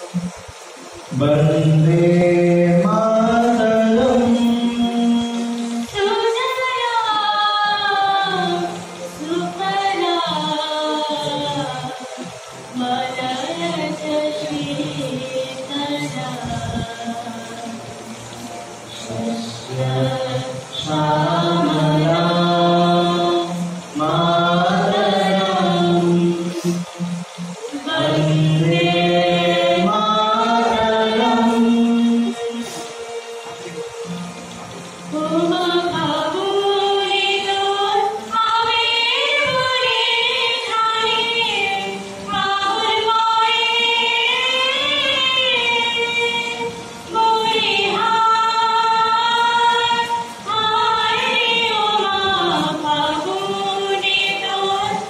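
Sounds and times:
group of voices singing: 1.1s - 18.2s, 18.9s - 34.1s, 35.1s - 55.0s.

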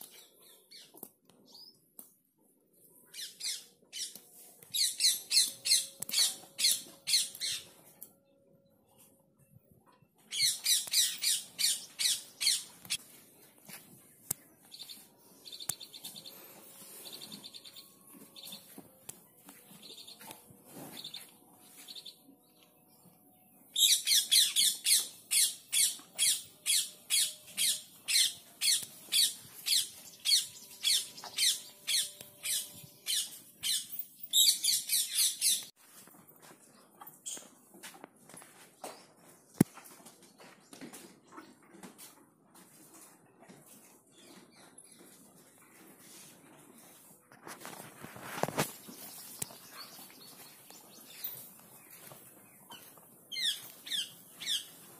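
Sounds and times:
bird chirping: 3.1s - 8.4s, 10.2s - 13.0s, 20.9s - 35.7s, 48.6s - 54.9s.

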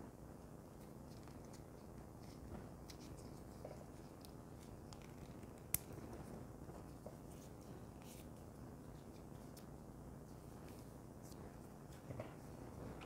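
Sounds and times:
small clicks and rubbing: 0.8s - 9.8s.

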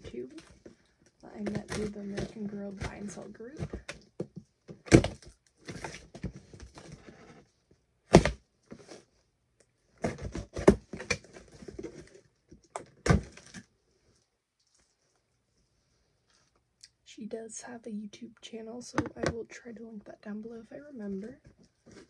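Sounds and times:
cardboard knocks and cracks: 1.4s - 6.9s, 8.1s - 8.4s, 10.0s - 12.0s, 12.9s - 13.6s.

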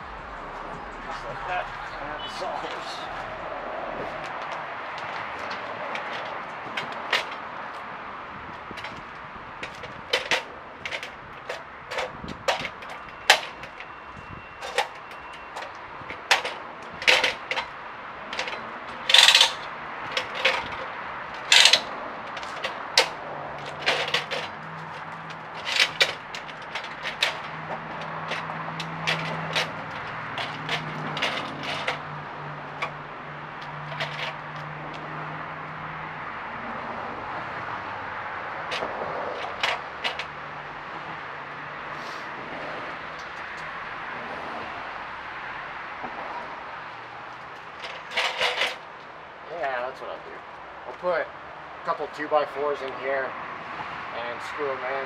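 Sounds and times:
sharp knocks and clanks: 4.0s - 7.8s, 8.6s - 14.0s, 14.6s - 35.0s, 38.7s - 40.4s, 47.6s - 49.0s.

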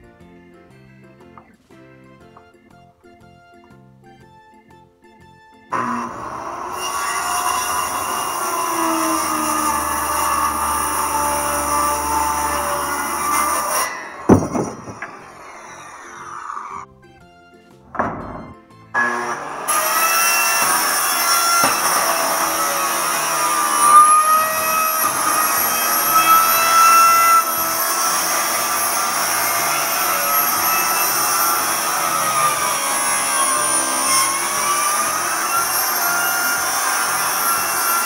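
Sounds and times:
circular saw cutting metal: 5.7s - 16.9s, 19.0s - 38.0s
knock: 14.3s - 15.1s, 17.9s - 18.6s.

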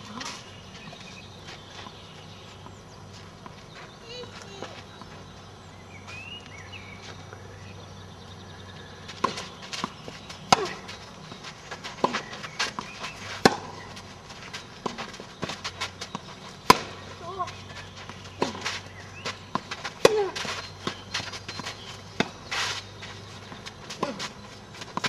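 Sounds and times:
footsteps on clay: 0.0s - 7.5s, 8.8s - 25.0s
racket striking tennis ball: 9.2s - 11.0s, 11.9s - 13.9s, 14.8s - 22.9s.

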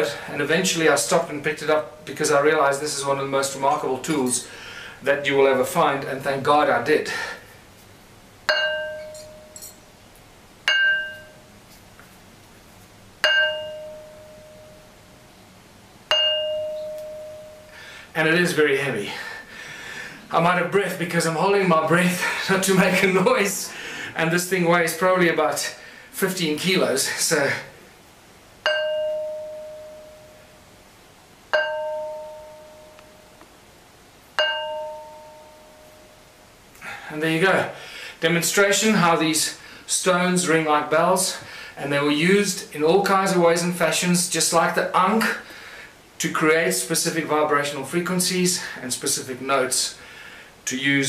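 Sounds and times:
stone struck ringing like a bell: 8.5s - 9.8s, 10.7s - 11.5s, 13.2s - 14.9s, 16.1s - 17.8s, 28.6s - 30.5s, 31.5s - 33.3s, 34.4s - 36.1s.

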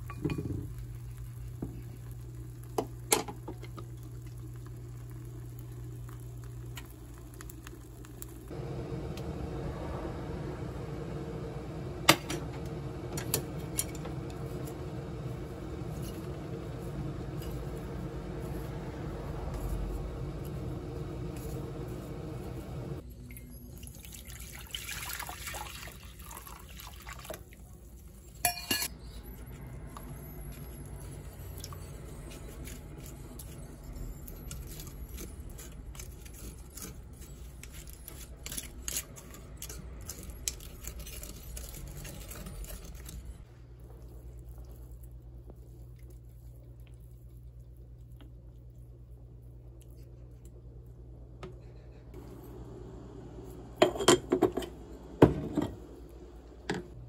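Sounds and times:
low hum: 0.0s - 23.8s
metal utensils clinking on pot: 28.4s - 29.0s.

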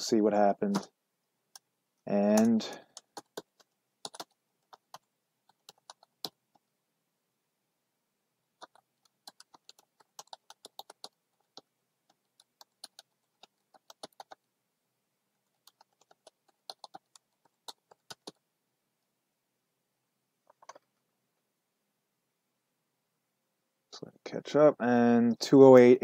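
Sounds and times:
typing on computer keyboard: 2.3s - 6.4s, 8.6s - 14.4s, 15.5s - 18.4s.

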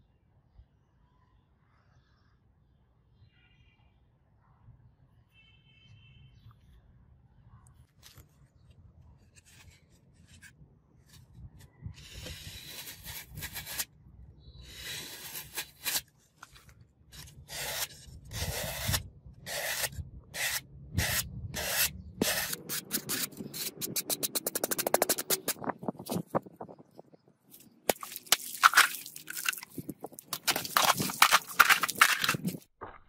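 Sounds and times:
knife slicing floral foam: 12.0s - 13.9s, 14.7s - 26.2s, 27.9s - 32.6s.

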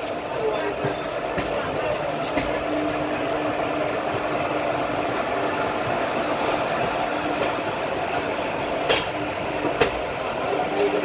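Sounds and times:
train wheels rumbling on track: 0.0s - 11.0s
sharp click: 2.2s - 2.5s.

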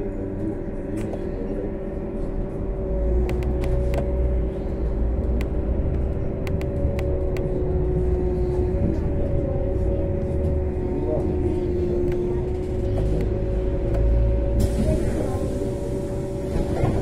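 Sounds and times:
trolleybus low rumble: 0.0s - 17.0s.

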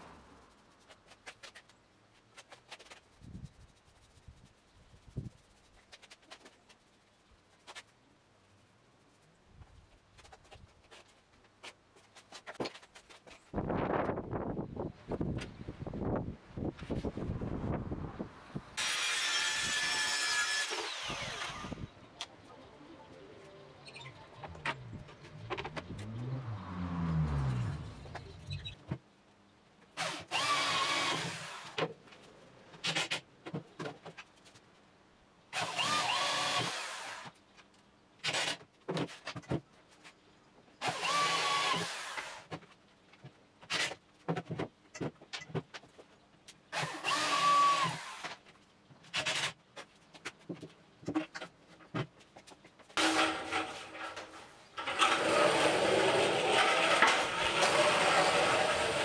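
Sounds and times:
electric drill running: 18.8s - 21.8s
low scrape: 24.0s - 28.8s.

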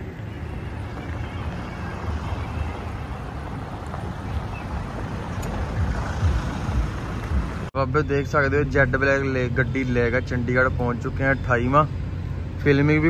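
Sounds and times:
street and vehicle hum: 0.0s - 13.0s
wind buffeting microphone: 0.6s - 7.7s.

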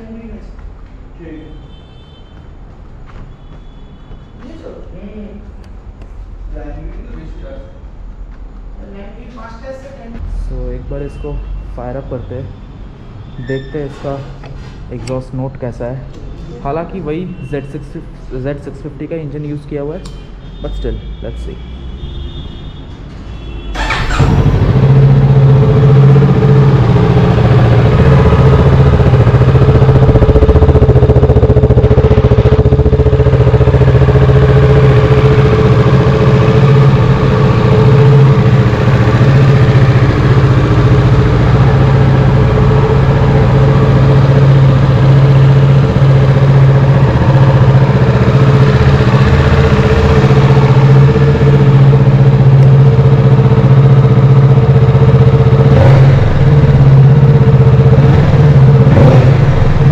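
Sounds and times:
motorcycle engine idling: 23.8s - 59.9s.

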